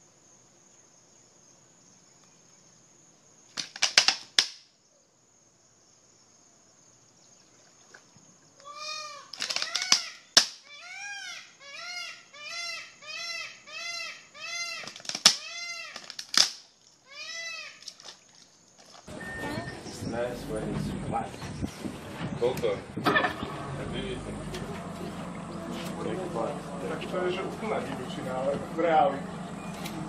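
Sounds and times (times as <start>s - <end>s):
animal calling: 8.6s - 16.1s, 17.0s - 18.0s
turtle shell cracking: 9.3s - 10.6s, 14.8s - 16.7s.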